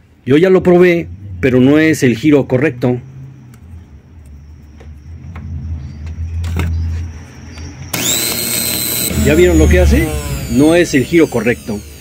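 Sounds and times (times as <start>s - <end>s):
low hum: 3.0s - 12.0s
blender motor whining: 7.9s - 12.0s.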